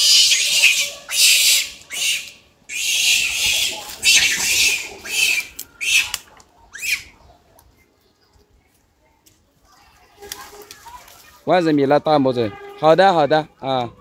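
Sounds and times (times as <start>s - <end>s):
infant monkey shrieking: 0.0s - 7.2s.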